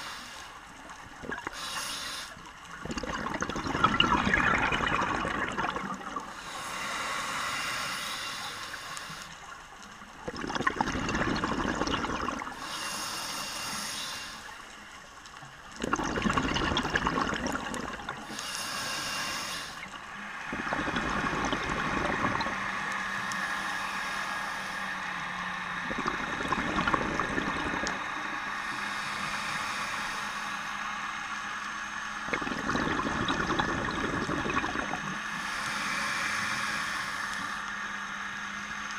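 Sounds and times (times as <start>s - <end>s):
diver breathing through regulator: 0.0s - 0.6s, 1.4s - 2.4s, 5.2s - 9.4s, 11.3s - 14.6s, 18.2s - 31.6s, 32.6s - 38.1s
exhaled bubbles rushing: 2.7s - 6.3s, 10.2s - 12.6s, 15.8s - 18.2s, 20.4s - 22.7s, 25.8s - 28.0s, 32.3s - 35.2s
steady low hum: 16.3s - 38.9s.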